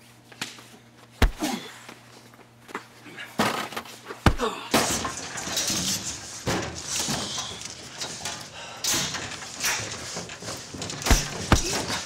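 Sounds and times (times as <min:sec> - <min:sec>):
heavy low thuds: 0:01.2 - 0:01.6
punches and scuffles: 0:01.2 - 0:02.0, 0:04.1 - 0:04.7, 0:10.9 - 0:12.0.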